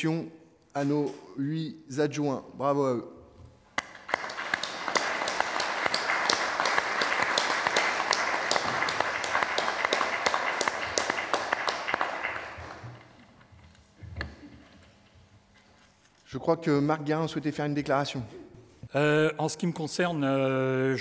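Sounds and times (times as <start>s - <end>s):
audience applauding: 3.8s - 13.2s.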